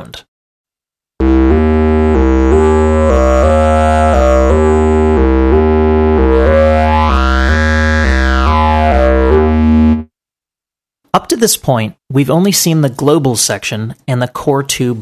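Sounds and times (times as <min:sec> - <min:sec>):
synth lead playing stepped notes: 0:01.2 - 0:10.1.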